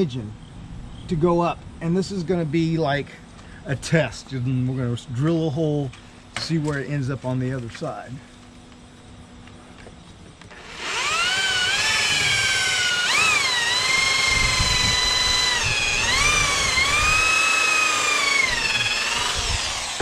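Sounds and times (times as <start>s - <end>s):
electric drill motor whine: 10.5s - 20.0s.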